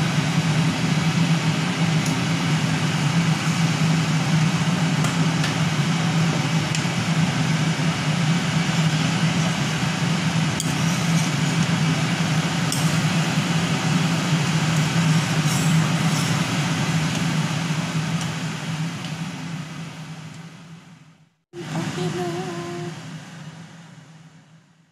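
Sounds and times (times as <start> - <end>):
steady low hum: 0.0 - 24.9.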